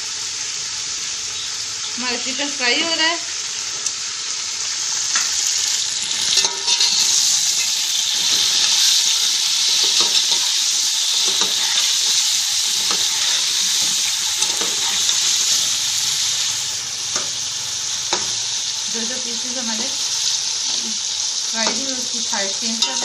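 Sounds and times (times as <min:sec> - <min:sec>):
chicken sizzling in hot oil: 0:00.0 - 0:23.0
oil popping and crackling: 0:04.8 - 0:19.0.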